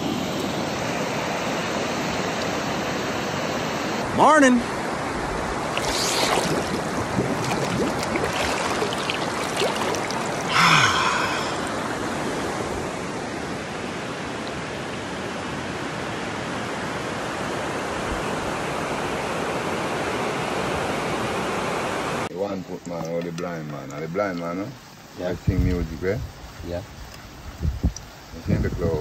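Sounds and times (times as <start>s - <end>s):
river rushing: 0.0s - 22.3s
small water splashes: 5.4s - 12.5s.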